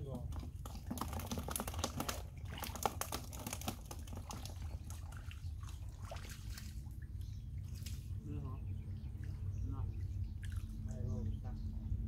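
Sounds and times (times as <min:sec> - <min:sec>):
splashes in muddy water: 0:00.3 - 0:08.2
steady low rumble: 0:06.7 - 0:12.0.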